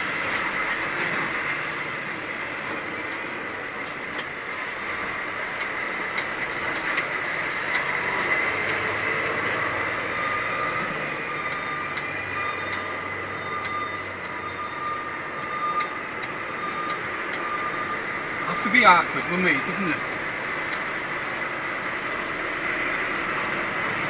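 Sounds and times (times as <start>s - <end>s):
diesel engine with high whine: 0.0s - 24.0s.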